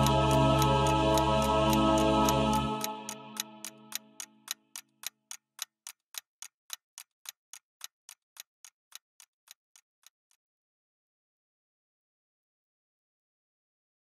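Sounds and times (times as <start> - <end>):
held musical chord: 0.0 - 4.2
clock ticking: 0.0 - 10.2.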